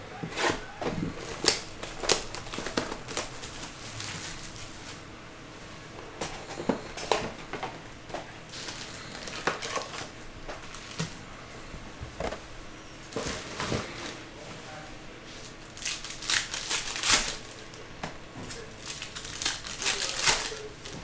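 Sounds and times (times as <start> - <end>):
foil packs rustling: 0.4 - 5.1, 6.2 - 11.2, 13.1 - 14.4, 15.4 - 21.0
plastic wrap crinkling and tearing: 1.0 - 5.0, 8.5 - 11.2, 15.4 - 17.8, 18.4 - 21.0.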